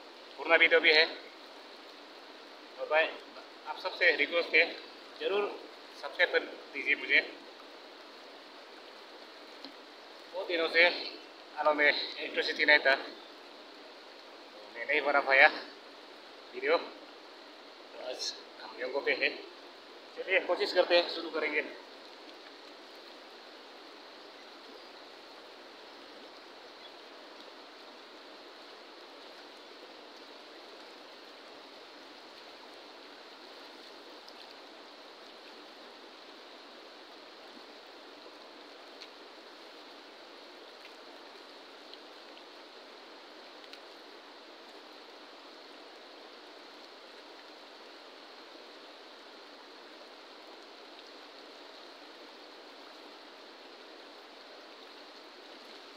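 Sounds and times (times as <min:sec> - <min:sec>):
faint clicks: 0:09.2 - 0:10.3, 0:43.5 - 0:44.0.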